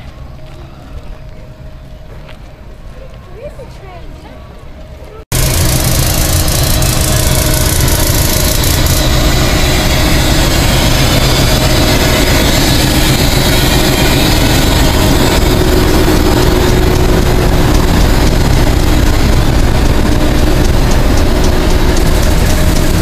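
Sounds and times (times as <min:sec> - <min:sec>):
locomotive engine idling: 0:05.3 - 0:23.0.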